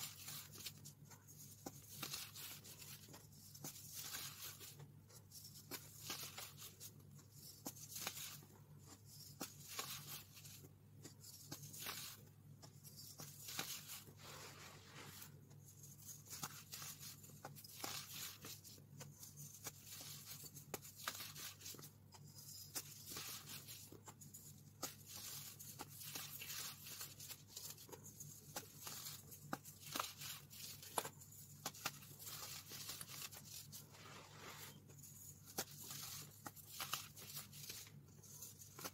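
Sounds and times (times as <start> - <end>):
fingers crumbling baking soda: 0.0 - 38.9.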